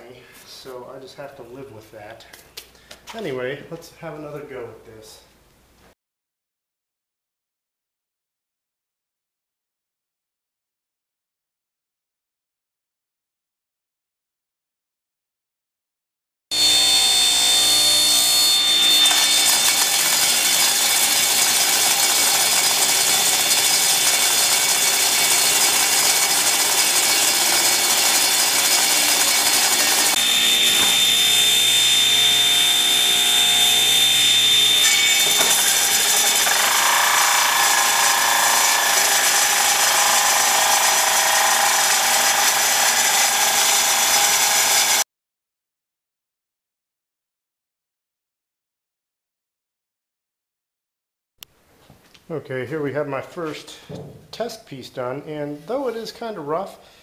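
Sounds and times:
table saw cutting wood: 16.5 - 45.1.

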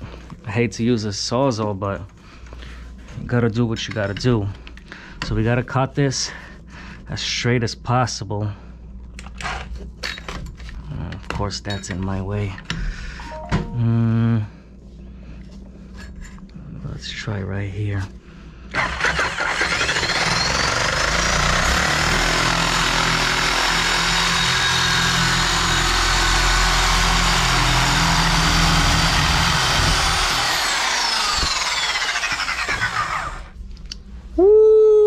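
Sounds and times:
reciprocating saw cutting pipe: 18.8 - 33.6.

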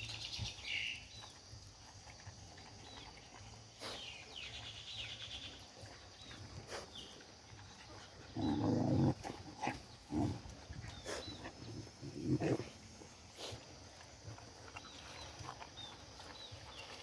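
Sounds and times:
puppy growling: 7.8 - 12.8.

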